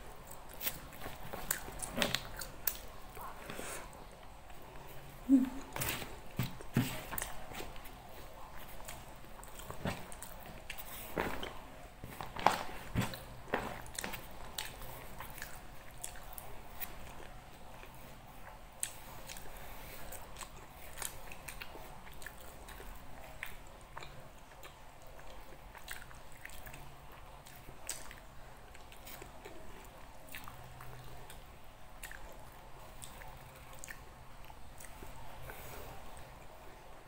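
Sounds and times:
person chewing food: 0.0s - 36.6s.

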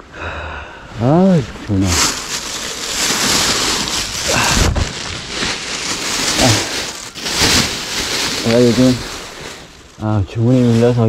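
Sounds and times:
rushing noise on microphone: 1.7s - 9.8s
faint vocal sounds: 6.3s - 7.0s.

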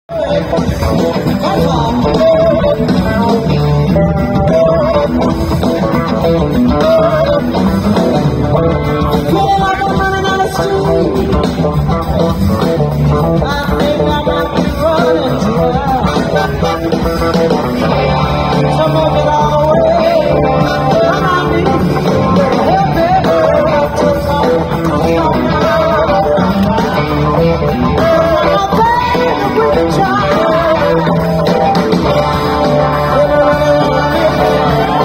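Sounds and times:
bass: 0.0s - 35.0s
drums: 0.0s - 35.0s
electric guitar: 0.0s - 35.0s
woman singing: 28.0s - 31.7s.

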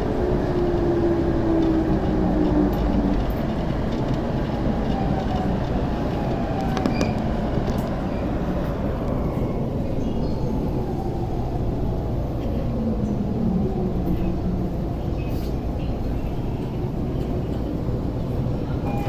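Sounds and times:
train running rumble: 0.0s - 19.0s.

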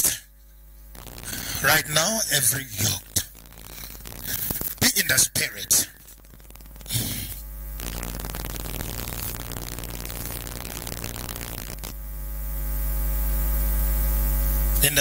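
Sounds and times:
electrical mains hum: 0.0s - 15.0s
harsh hiss: 0.9s - 11.8s.

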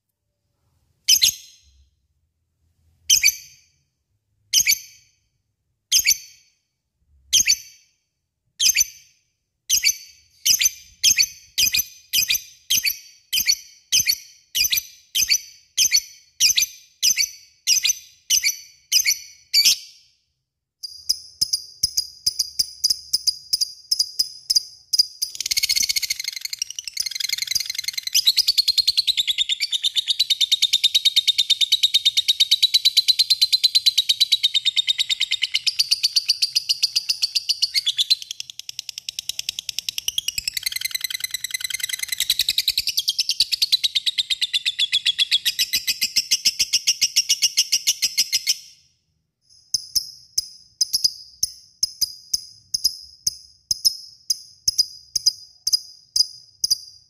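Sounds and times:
lovebird chirping: 1.1s - 1.8s, 20.8s - 48.8s
lovebird chattering trill: 25.2s - 32.6s.

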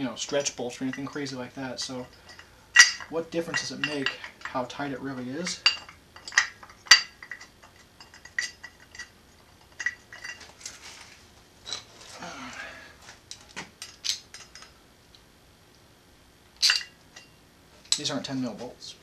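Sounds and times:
metallic clinks of wrench and bolts: 2.0s - 4.6s
soft rustling scrape: 10.4s - 12.2s.

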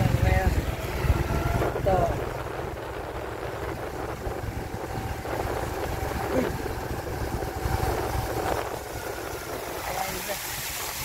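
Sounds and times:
motorbike engine running: 0.0s - 11.0s
wind rumbling on microphone: 0.0s - 11.0s.

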